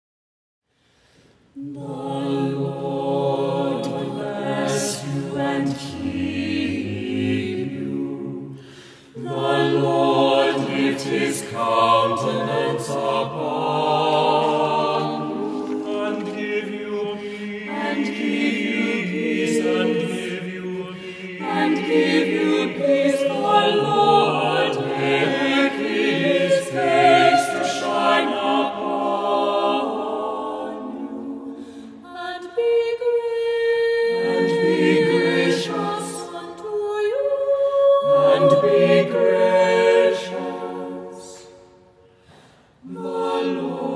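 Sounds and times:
choir singing held chords: 1.5s - 43.9s.

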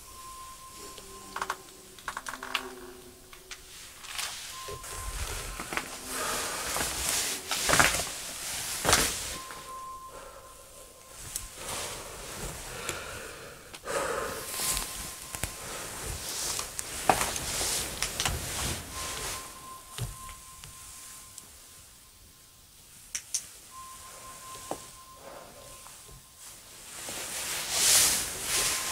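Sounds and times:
footsteps: 0.0s - 21.2s
faint high tone: 0.0s - 22.8s, 23.7s - 26.8s
rustling: 0.0s - 28.9s.

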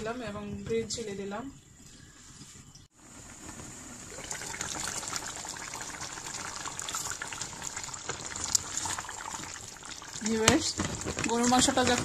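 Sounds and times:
stew bubbling and crackling in pot: 3.0s - 12.0s.

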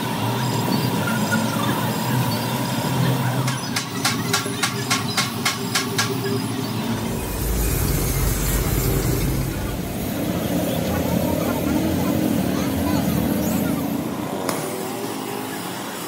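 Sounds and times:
low engine rumble: 6.8s - 13.0s.

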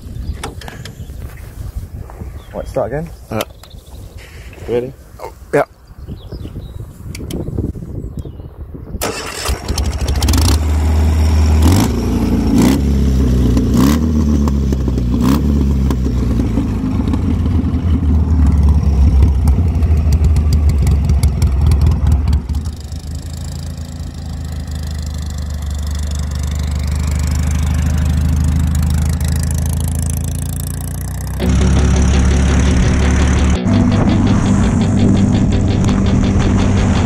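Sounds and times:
motorcycle engine revving: 9.0s - 37.0s.

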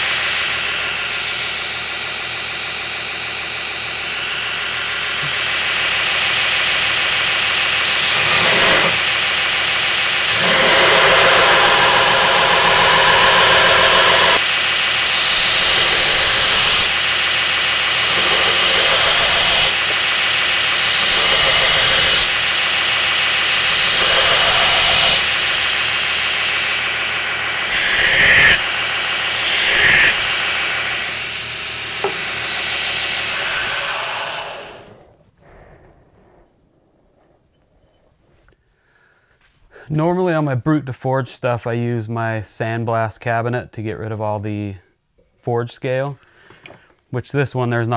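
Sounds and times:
belt grinder grinding steel: 0.0s - 35.1s
grinder running down: 0.0s - 35.2s.

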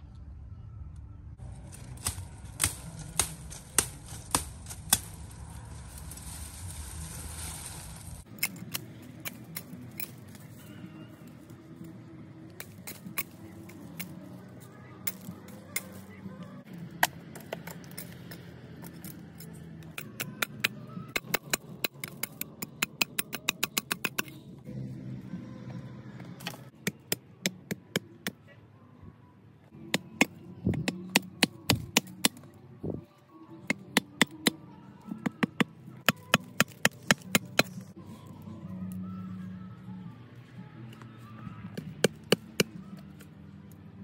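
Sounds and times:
background music: 0.0s - 44.0s
machete striking wooden stakes: 1.7s - 5.3s, 29.9s - 32.4s, 35.3s - 37.8s.

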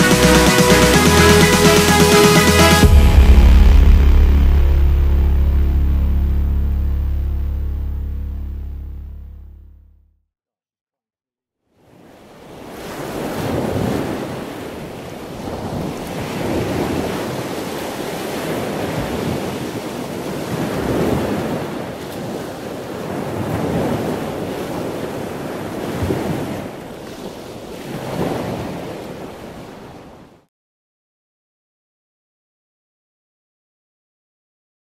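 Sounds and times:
sea waves washing in: 11.8s - 30.5s.

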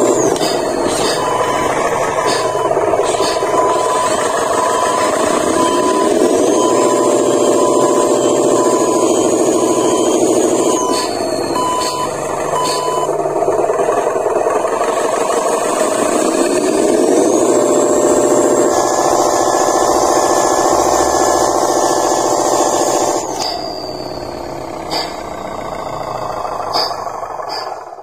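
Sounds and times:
short beeps: 0.1s - 13.1s, 23.4s - 26.1s.

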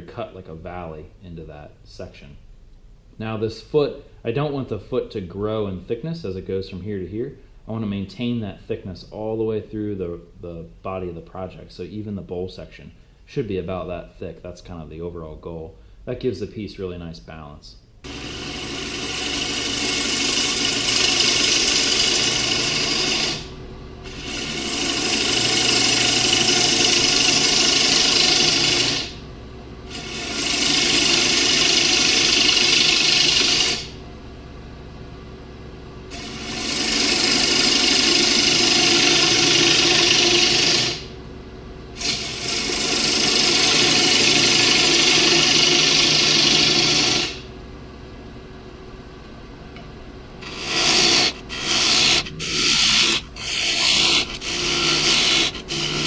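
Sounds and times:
lathe humming: 18.1s - 29.2s, 29.9s - 34.0s, 36.1s - 41.2s, 42.0s - 47.5s, 49.8s - 56.0s
turning tool cutting wood hiss: 18.1s - 29.2s, 29.9s - 34.0s, 36.1s - 41.1s, 42.0s - 47.5s, 50.4s - 56.0s.

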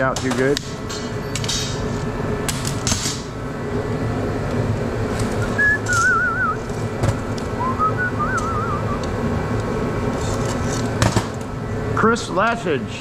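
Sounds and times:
fan heater hum: 0.0s - 13.0s
warbling whistle: 5.4s - 6.7s, 7.6s - 9.0s.

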